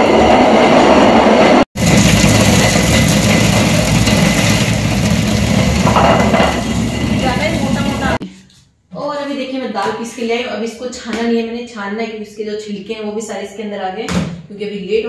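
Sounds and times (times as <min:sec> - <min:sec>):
stone quern grinding rumble: 0:01.8 - 0:08.2.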